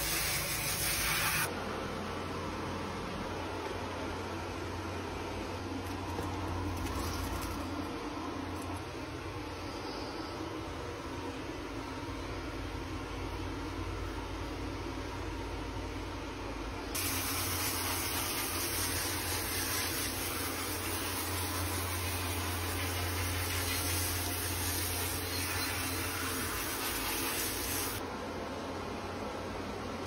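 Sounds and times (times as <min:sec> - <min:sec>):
water spraying from sprayer: 0:00.0 - 0:01.5, 0:17.0 - 0:28.0.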